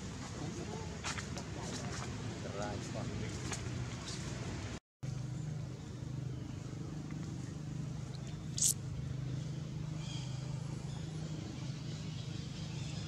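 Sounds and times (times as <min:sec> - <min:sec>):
engine humming: 0:02.8 - 0:12.8.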